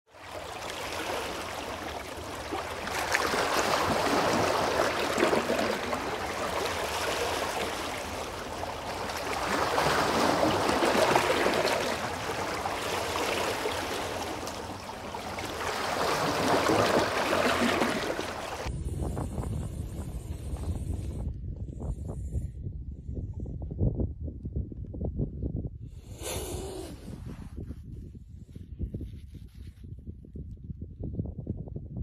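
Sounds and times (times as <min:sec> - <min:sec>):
waves washing over pebble beach: 0:00.2 - 0:18.7.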